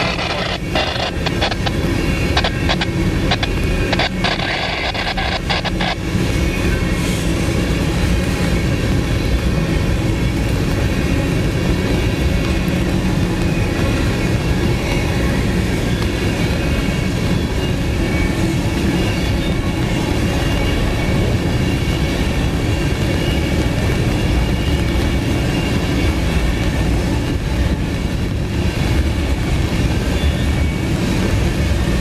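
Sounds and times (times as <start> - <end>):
faint high steady tones: 0.0 - 6.9
train wheels rumbling on rails: 0.0 - 32.0.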